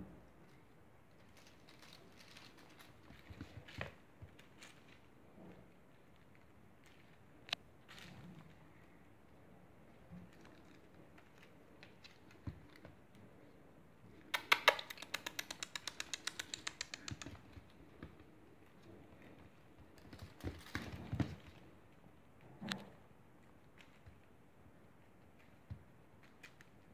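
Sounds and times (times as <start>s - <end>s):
fast sharp clicks: 14.1s - 17.7s.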